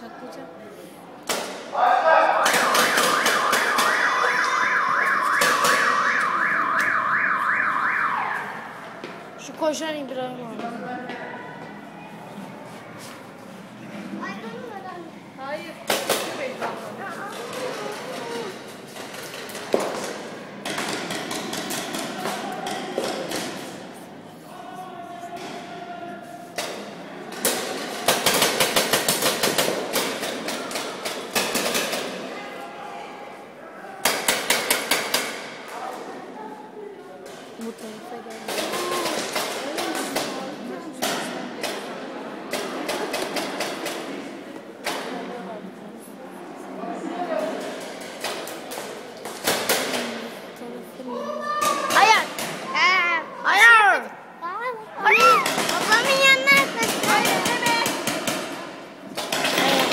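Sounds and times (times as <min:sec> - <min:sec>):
electronic warbling siren: 0:02.3 - 0:08.8
sharp cracks: 0:02.4 - 0:08.1, 0:26.6 - 0:32.2.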